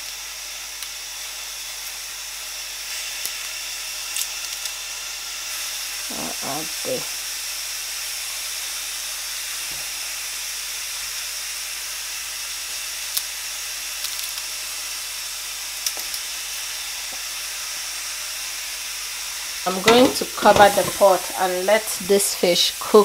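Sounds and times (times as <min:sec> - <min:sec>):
pot steaming hiss: 0:00.0 - 0:23.0.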